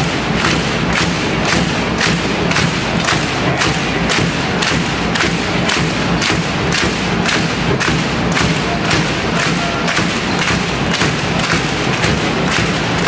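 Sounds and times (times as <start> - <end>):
crowd beating a rhythm: 0.0 - 13.0
crowd noise: 0.0 - 13.0.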